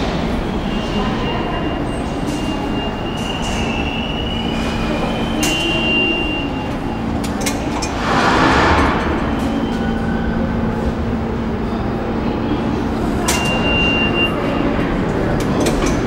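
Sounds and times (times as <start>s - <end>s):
subway train rumble: 0.0s - 16.0s
turnstile metal clicks: 15.1s - 16.0s.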